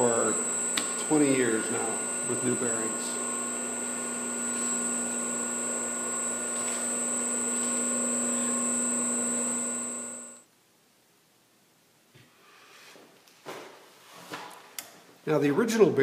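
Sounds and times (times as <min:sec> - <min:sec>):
electric motor whine and hum: 0:00.0 - 0:10.4.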